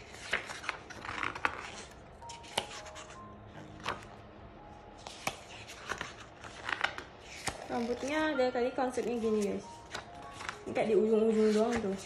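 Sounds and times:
photobook pages rustling: 0.0 - 4.2, 4.9 - 12.0
soft background music: 0.0 - 12.0.

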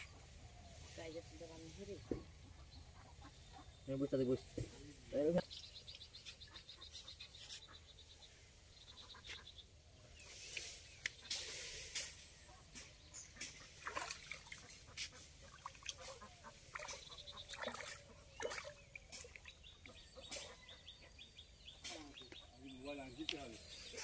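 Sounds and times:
small birds chirping: 0.0 - 24.0
fish splashing at water surface: 13.4 - 19.6.

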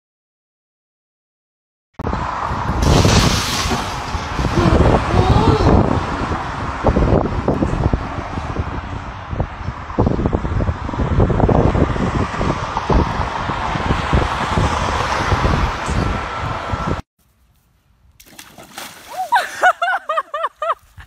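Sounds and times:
water splashing in paddling pool: 18.2 - 19.8.

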